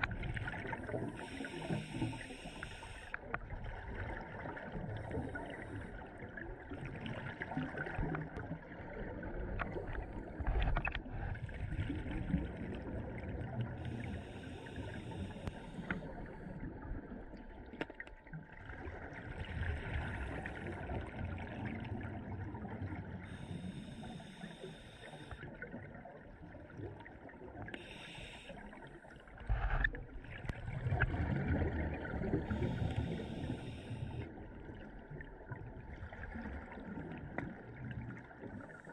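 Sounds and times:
exhaled bubbles gurgling: 0.0s - 38.9s
regulator hissing inhalations: 1.0s - 3.2s, 23.3s - 25.5s, 27.8s - 28.8s, 32.5s - 34.3s.

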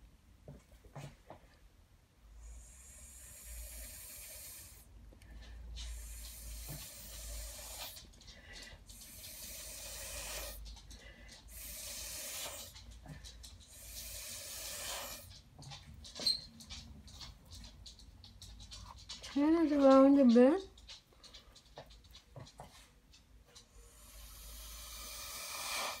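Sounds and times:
breath blown through straw: 9.0s - 10.6s, 11.5s - 12.7s, 13.7s - 15.3s, 23.8s - 26.0s.

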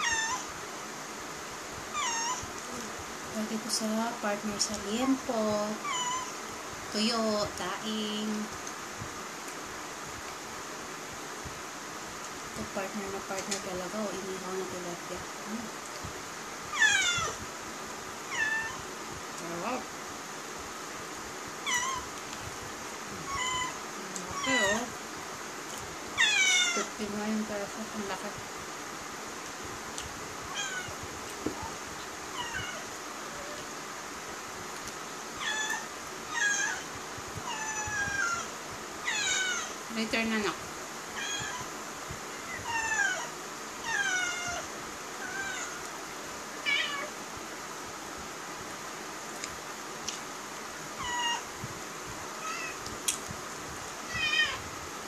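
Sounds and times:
cat meowing: 0.0s - 0.5s, 2.0s - 2.5s, 16.7s - 17.4s, 18.3s - 18.8s, 23.2s - 24.8s, 26.2s - 26.9s, 30.5s - 30.9s, 35.4s - 36.9s, 37.5s - 39.8s, 41.1s - 41.7s, 42.5s - 45.8s, 46.6s - 47.1s, 51.0s - 51.5s, 52.4s - 52.8s, 54.0s - 54.6s
cat meowing loudly: 16.7s - 17.4s, 26.2s - 26.9s, 41.2s - 41.7s, 54.1s - 54.6s.

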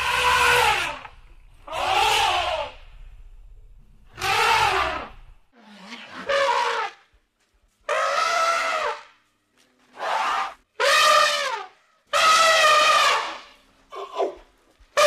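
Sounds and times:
elephant trumpeting: 0.0s - 3.1s, 4.0s - 7.0s, 7.9s - 9.1s, 10.0s - 13.6s.

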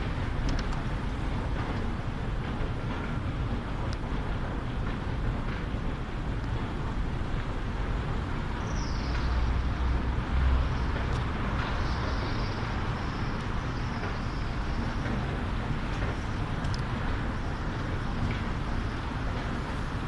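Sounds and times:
passing vehicles: 6.9s - 20.0s.

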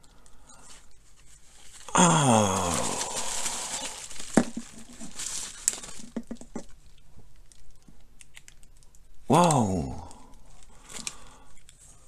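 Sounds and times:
bubble wrap crinkling: 0.6s - 9.0s.

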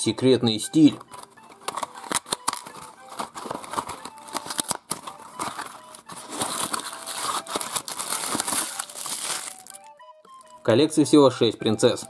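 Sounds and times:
packaging crackling and tearing: 1.1s - 10.6s.

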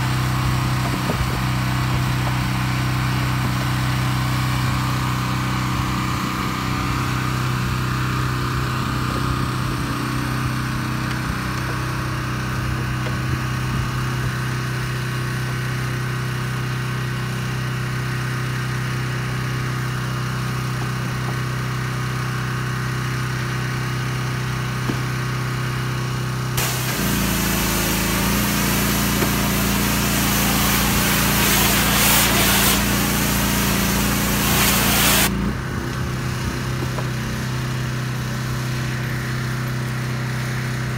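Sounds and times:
small gas engine running: 0.0s - 40.9s
high-pressure spray hissing: 26.6s - 35.3s.

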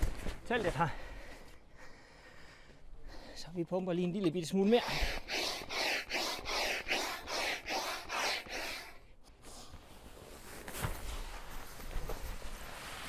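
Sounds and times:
hand pump whooshing: 4.7s - 9.0s.

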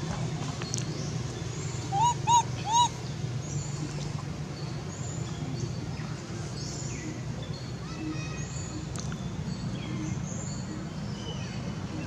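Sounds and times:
whistled animal calls: 1.9s - 3.0s.

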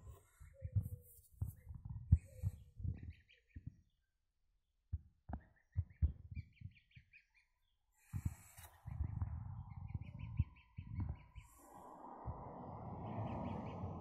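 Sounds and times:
soft low thumps: 8.2s - 11.5s, 12.1s - 14.0s.

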